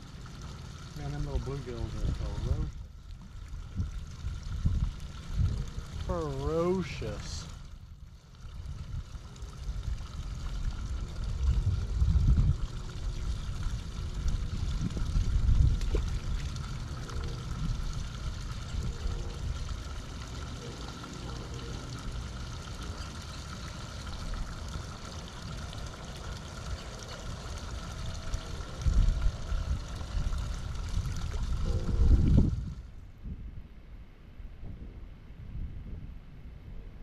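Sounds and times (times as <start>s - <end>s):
water trickling in a ditch: 0.0s - 33.0s
low rumble: 7.5s - 20.7s, 24.2s - 37.0s.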